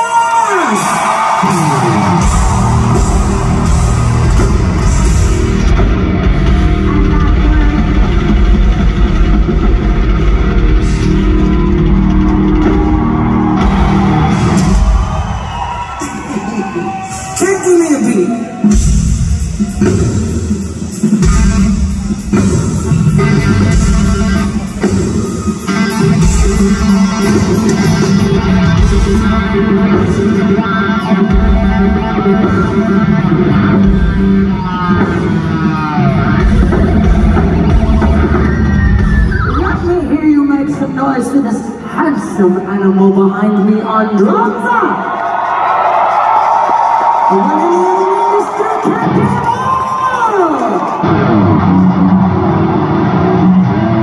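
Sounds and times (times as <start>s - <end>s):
distorted guitars: 0.0s - 17.7s, 18.3s - 42.4s, 46.6s - 54.0s
live heavy metal band: 0.0s - 41.9s, 45.2s - 54.0s
electric guitar sustained notes: 51.0s - 54.0s.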